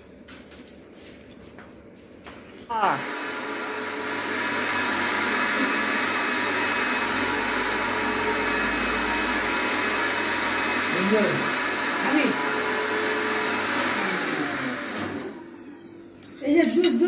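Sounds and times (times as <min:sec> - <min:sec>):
electric motor whirring: 0:03.0 - 0:15.6.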